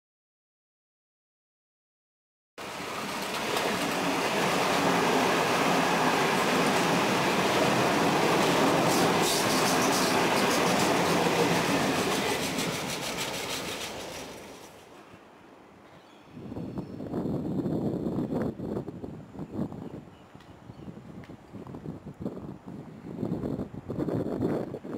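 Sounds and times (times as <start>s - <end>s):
train wheels rumbling on rail: 2.6s - 15.2s
wheels clicking over rail joints: 2.6s - 15.3s.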